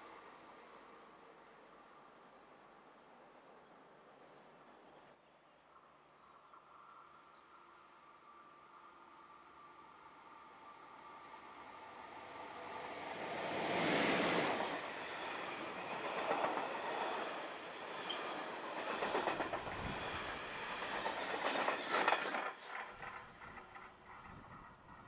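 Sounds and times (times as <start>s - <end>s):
train wheels rumbling on rails: 12.6s - 25.0s.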